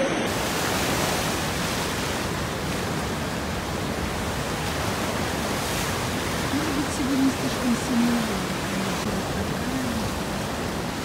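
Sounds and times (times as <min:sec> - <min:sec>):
ocean surf breaking over rocks: 0:00.0 - 0:11.0.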